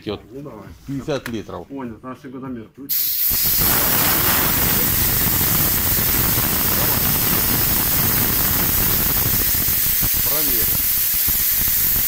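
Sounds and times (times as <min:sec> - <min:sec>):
piston air compressor running: 0:02.9 - 0:12.0.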